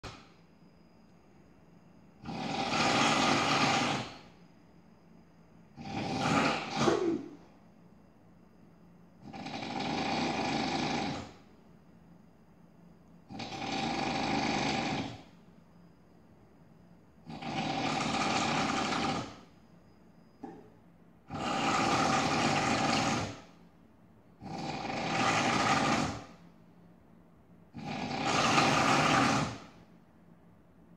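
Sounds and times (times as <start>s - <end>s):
person snoring heavily: 2.2s - 4.3s, 5.8s - 7.4s, 9.2s - 11.4s, 13.3s - 15.2s, 17.3s - 19.4s, 21.3s - 23.5s, 24.4s - 26.4s, 27.8s - 29.7s.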